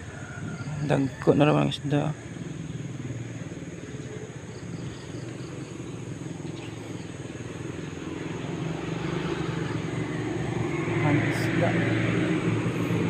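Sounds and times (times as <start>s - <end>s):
faint high insect drone: 0.0s - 13.0s.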